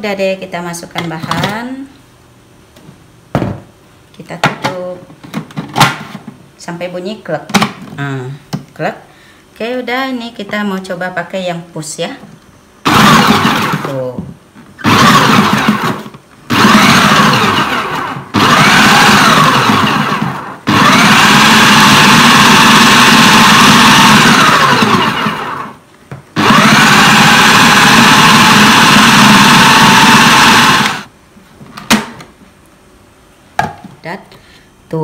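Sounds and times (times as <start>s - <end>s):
food processor motor bursts: 12.8s - 14.0s, 14.8s - 25.8s, 26.4s - 31.1s.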